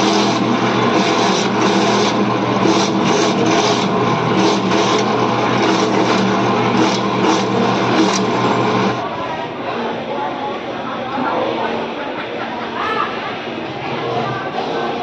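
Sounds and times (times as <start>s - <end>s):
coconut scraping on grater: 0.0s - 9.0s
electric grater motor humming: 0.0s - 9.0s.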